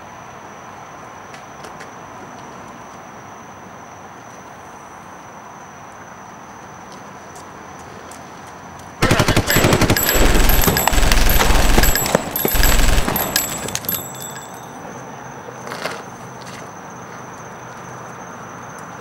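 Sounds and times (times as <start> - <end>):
crickets chirping: 0.0 - 19.0
rapid gunfire: 9.0 - 14.3.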